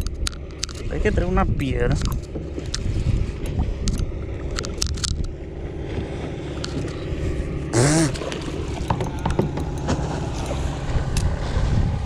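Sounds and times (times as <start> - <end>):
wind and water noise: 0.0 - 12.0
person grunting: 7.8 - 8.2.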